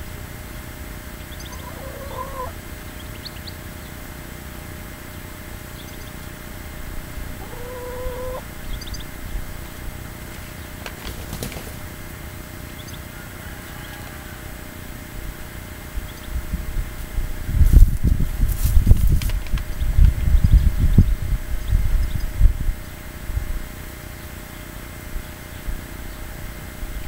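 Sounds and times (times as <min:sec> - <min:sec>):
animal calling: 0:01.2 - 0:04.0, 0:07.2 - 0:09.2
high bird chirps: 0:01.2 - 0:04.0, 0:07.4 - 0:09.2.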